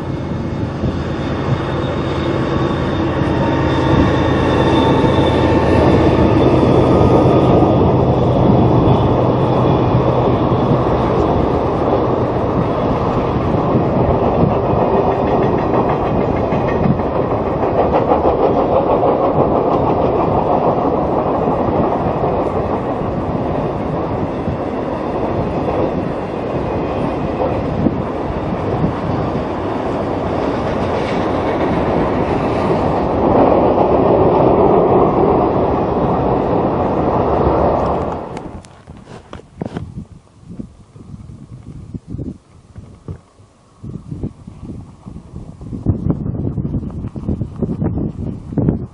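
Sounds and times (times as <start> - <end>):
diesel locomotive engine: 0.0 - 48.9
train cars rumbling over bridge: 0.0 - 48.9.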